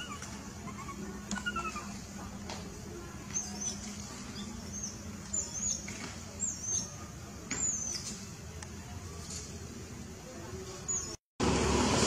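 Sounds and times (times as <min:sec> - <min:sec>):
high-pitched animal chirping calls: 0:00.0 - 0:02.0
steady background hum: 0:00.0 - 0:11.2.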